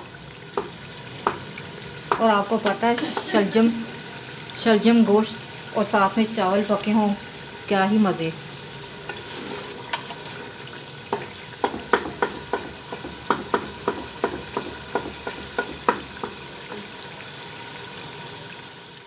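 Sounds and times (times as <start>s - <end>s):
food sizzling in a pot: 0.0s - 19.0s
wooden spoon knocking against pot: 11.1s - 16.9s.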